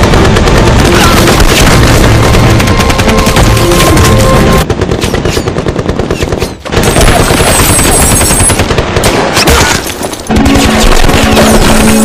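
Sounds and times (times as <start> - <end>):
machine gun firing automatic bursts: 0.0 - 12.0
music: 0.8 - 4.6, 10.3 - 12.0.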